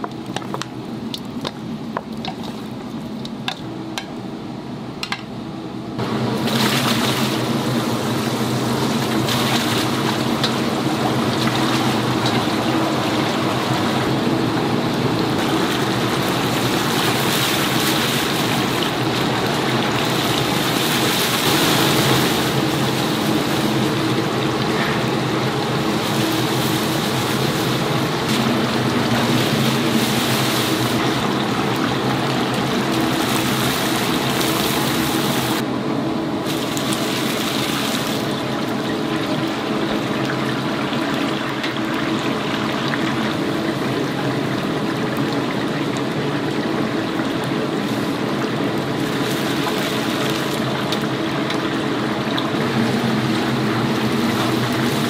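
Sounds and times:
chicken deep-frying in hot oil: 0:00.0 - 0:05.3, 0:05.9 - 0:55.0
steady low hum: 0:00.0 - 0:55.0.

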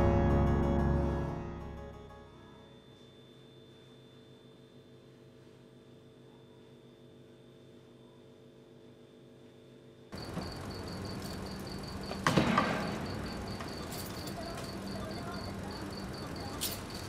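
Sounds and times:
cricket chirping: 0:10.2 - 0:17.0.

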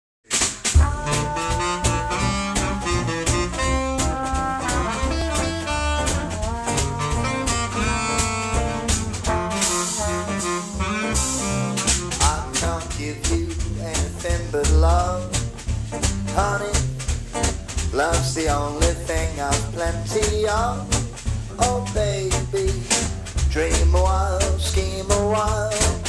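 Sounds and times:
drum kit beat: 0:00.2 - 0:26.0
trombone: 0:00.3 - 0:14.0, 0:18.8 - 0:26.0
guitar: 0:00.3 - 0:26.0
swing jazz band playing: 0:00.3 - 0:26.0
upright double bass: 0:00.4 - 0:26.0
saxophone: 0:00.8 - 0:12.7.

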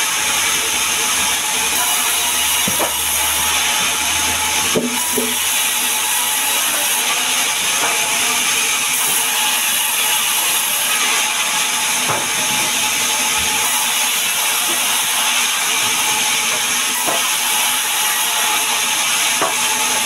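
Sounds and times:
band saw cutting log: 0:00.0 - 0:20.0.

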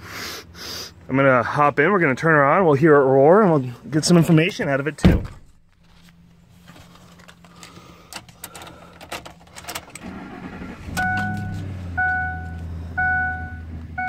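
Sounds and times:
car engine starting and idling: 0:04.0 - 0:14.0
keys jingling in ignition: 0:07.0 - 0:11.7
dashboard warning chime: 0:10.9 - 0:14.0.

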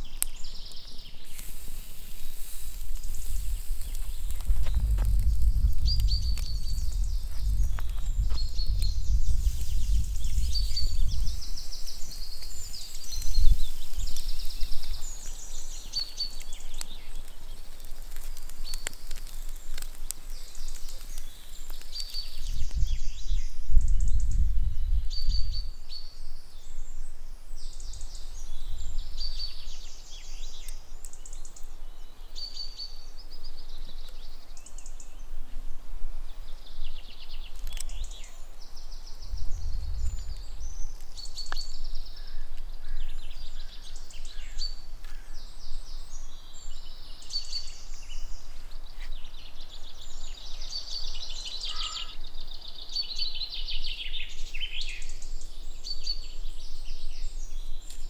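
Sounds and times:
birds chirping and trilling: 0:00.0 - 0:35.3, 0:36.3 - 0:58.0
low background rumble: 0:03.1 - 0:11.7.

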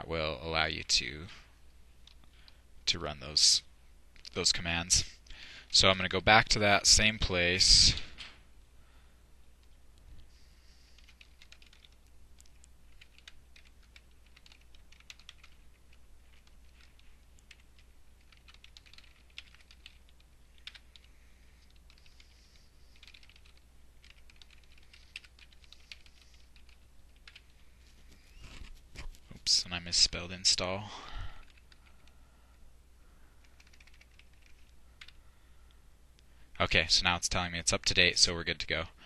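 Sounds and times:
typing on computer keyboard: 0:10.9 - 0:27.6, 0:33.4 - 0:35.2.

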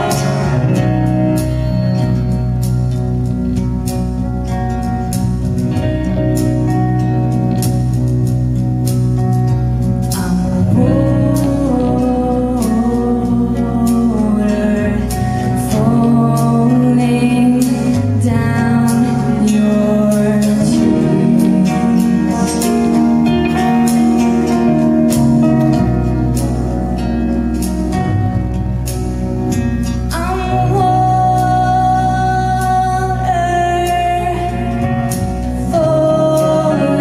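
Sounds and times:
person singing: 0:00.0 - 0:02.2, 0:10.0 - 0:26.4, 0:30.0 - 0:37.0
acoustic guitar: 0:00.0 - 0:37.0
live band playing: 0:00.0 - 0:37.0.

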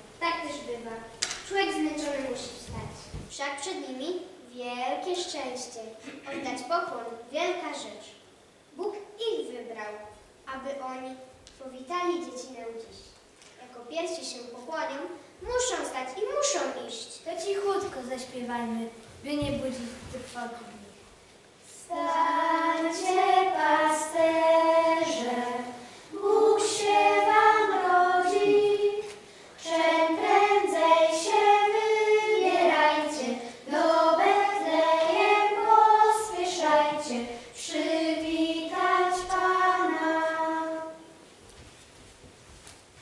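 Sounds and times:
children's choir singing: 0:21.8 - 0:41.2.

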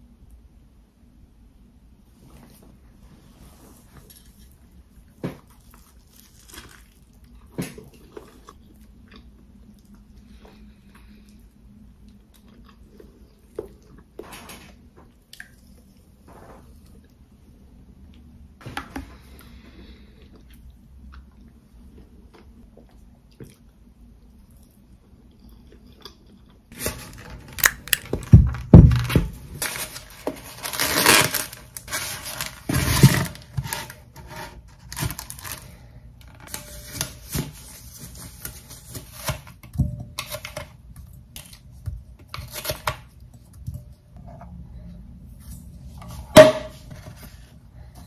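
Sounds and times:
plastic wrap crinkling and tearing: 0:05.6 - 0:07.2, 0:26.7 - 0:35.8.

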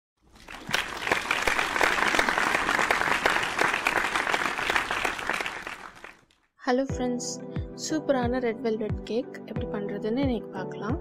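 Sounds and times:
crowd applause: 0:00.3 - 0:06.3.

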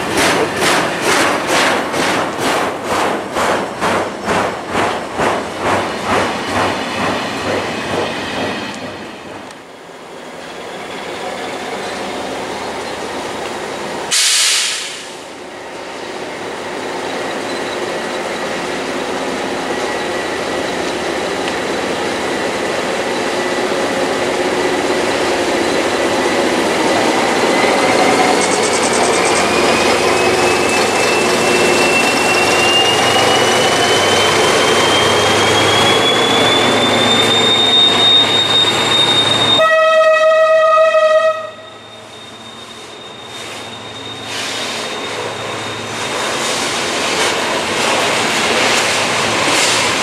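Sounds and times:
diesel locomotive approaching: 0:00.0 - 0:50.0
loud hiss: 0:14.0 - 0:15.3
high whine: 0:26.6 - 0:39.5.

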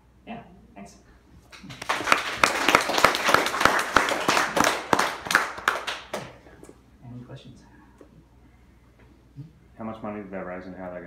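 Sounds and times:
audience clapping: 0:01.5 - 0:06.5.

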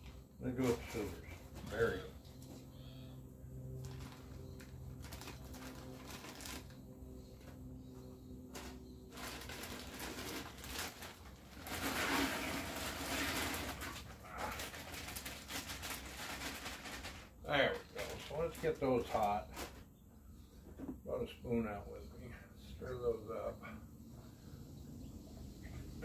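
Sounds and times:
low steady hum: 0:00.0 - 0:26.0
plastic bag crinkling: 0:03.8 - 0:06.8, 0:08.5 - 0:19.8
frozen berries rattling into pot: 0:08.6 - 0:19.8.

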